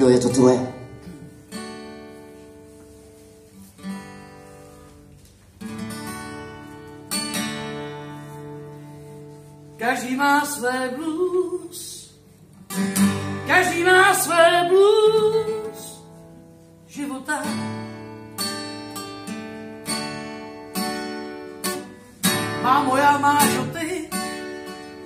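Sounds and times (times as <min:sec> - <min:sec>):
acoustic guitar strumming: 0:00.0 - 0:25.0
woman singing: 0:09.8 - 0:12.2, 0:13.4 - 0:16.1, 0:16.9 - 0:18.0, 0:22.4 - 0:24.7.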